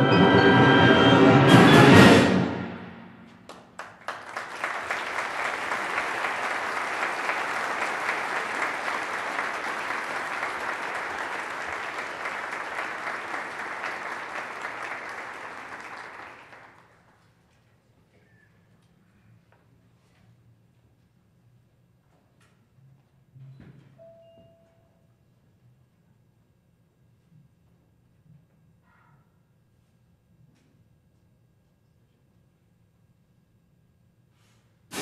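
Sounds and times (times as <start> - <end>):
audience applauding: 3.3 - 17.1.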